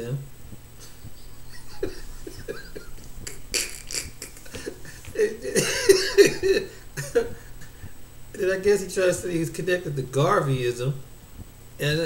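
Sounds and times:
man laughing: 0.8s - 7.9s.

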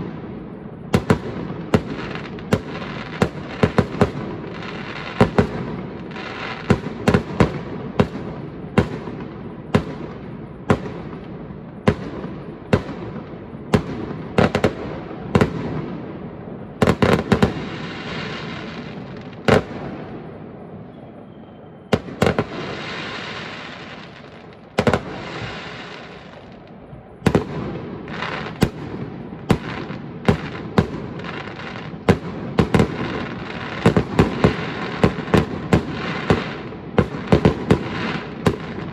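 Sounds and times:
fireworks crackling hiss: 0.0s - 8.2s, 16.7s - 21.3s, 21.9s - 38.9s
fireworks bursting with sharp bangs: 0.0s - 38.9s.

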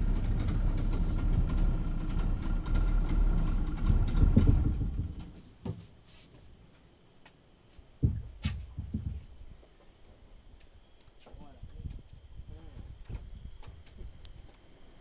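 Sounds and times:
boat engine running: 0.0s - 5.3s.

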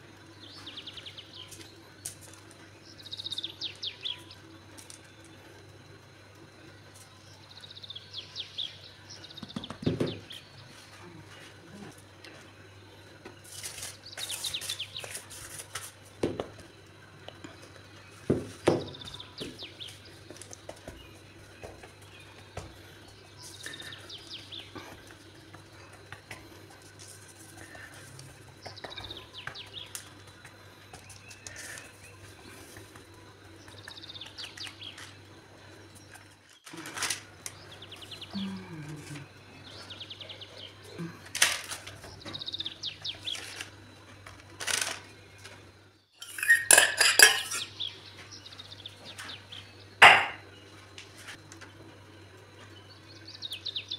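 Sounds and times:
birds chirping: 0.1s - 15.4s, 16.0s - 53.9s
hands patting pizza dough: 9.3s - 10.4s.

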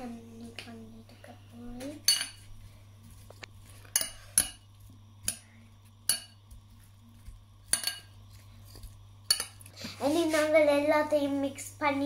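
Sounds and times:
spoon clinking against glass bowl: 7.7s - 8.2s, 9.3s - 9.6s.

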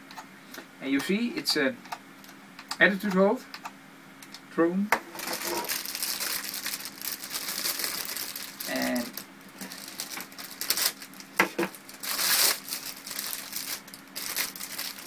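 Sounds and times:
plastic packaging crinkling: 5.1s - 15.0s.

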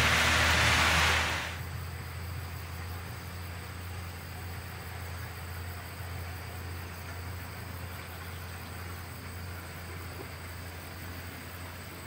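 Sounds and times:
even hiss: 0.0s - 1.7s
distant diesel locomotive: 0.0s - 12.0s.

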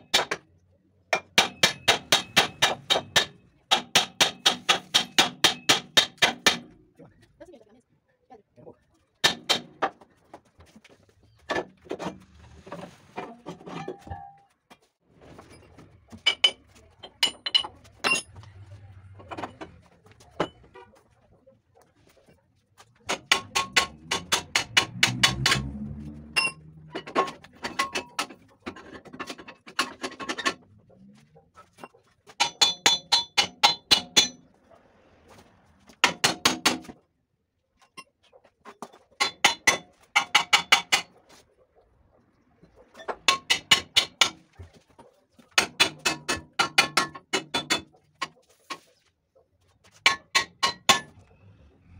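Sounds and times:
hammer striking steel: 1.2s - 6.7s, 23.1s - 28.4s, 32.4s - 34.4s, 50.1s - 51.2s
metal scraping and knocks: 11.5s - 14.5s, 23.0s - 30.7s.

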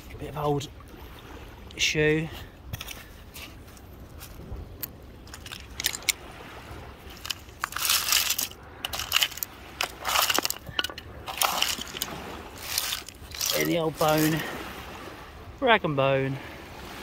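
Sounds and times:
gravel crunching: 7.0s - 14.5s.

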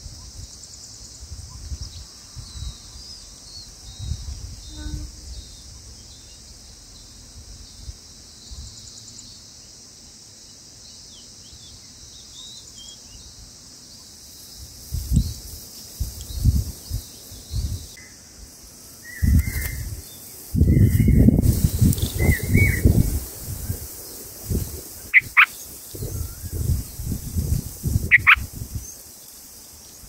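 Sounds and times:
wind rumble on microphone: 0.0s - 5.9s, 14.6s - 18.0s, 19.1s - 29.0s
insects droning: 0.0s - 30.0s
faint high bird chirps: 22.0s - 23.0s, 25.1s - 26.8s, 28.1s - 29.0s.

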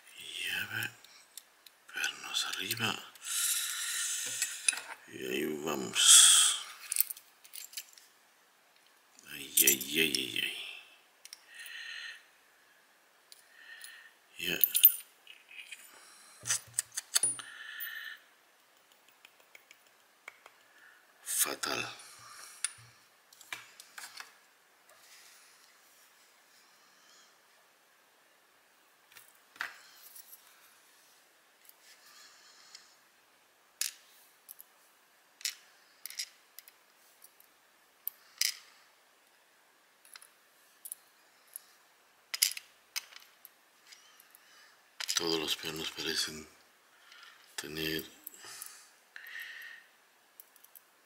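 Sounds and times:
small metal pins clinking: 14.6s - 17.4s
sharp clicks and light knocks: 18.7s - 20.7s.

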